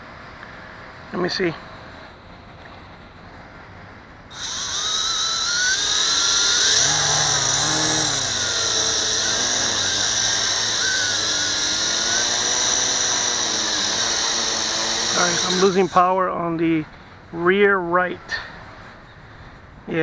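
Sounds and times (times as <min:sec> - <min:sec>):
quadcopter motors whining: 0:04.3 - 0:16.2.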